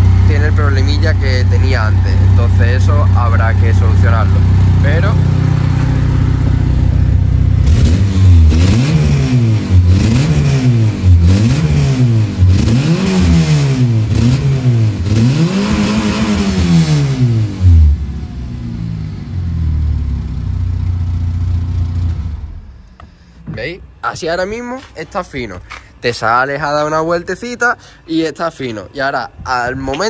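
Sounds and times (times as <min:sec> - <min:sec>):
car engine idling and revving: 0:00.0 - 0:23.3.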